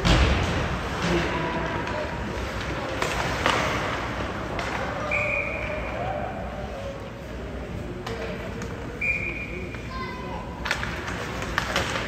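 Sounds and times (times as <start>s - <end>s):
short high whistle: 9.0s - 9.6s
hockey sticks and puck knocking: 10.6s - 12.0s.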